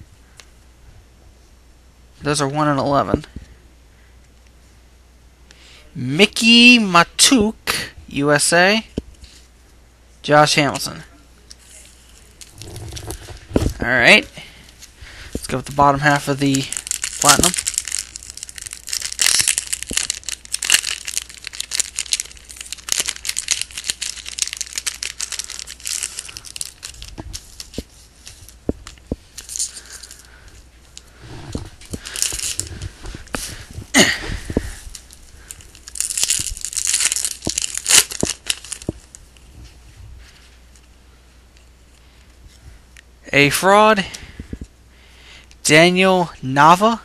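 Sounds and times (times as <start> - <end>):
wrapper tearing and crinkling: 11.6 - 13.8, 15.6 - 39.4.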